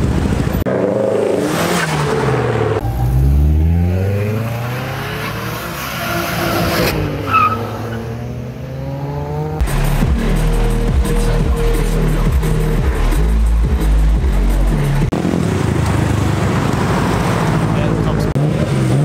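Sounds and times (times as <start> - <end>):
car engines revving: 0.0 - 19.0.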